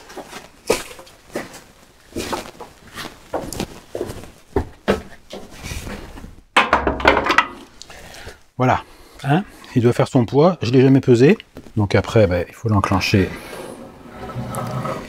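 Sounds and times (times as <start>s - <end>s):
footsteps: 0.0s - 6.4s, 11.4s - 11.8s
metal clunk and scrape: 6.6s - 7.6s
metal knocks: 6.6s - 7.6s.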